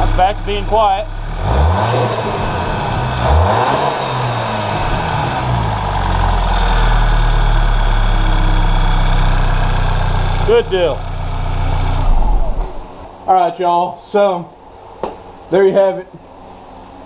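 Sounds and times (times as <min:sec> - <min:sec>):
car engine revving and idling: 0:00.0 - 0:13.1.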